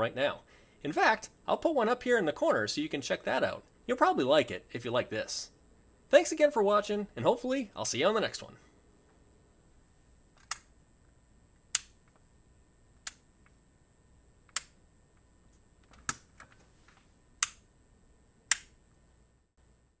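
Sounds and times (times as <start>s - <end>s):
toggle switches clicking: 11.7s - 12.0s, 14.5s - 14.8s, 18.5s - 18.7s.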